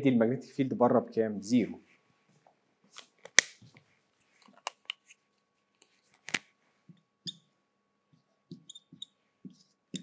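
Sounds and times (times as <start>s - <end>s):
marker tip squeak: 7.2s - 7.5s, 8.5s - 9.2s
marker writing on whiteboard: 8.5s - 10.0s.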